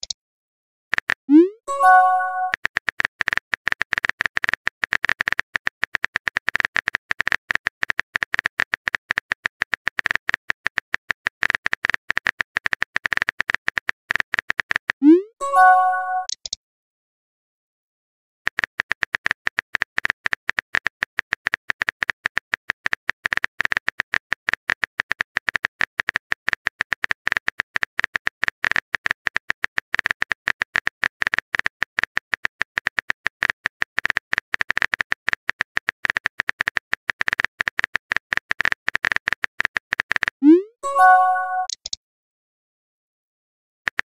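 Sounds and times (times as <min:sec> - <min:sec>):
typing key clicks: 0:00.9 - 0:05.3, 0:38.5 - 0:42.0
rising message sent pop: 0:01.3 - 0:02.6, 0:40.4 - 0:41.8.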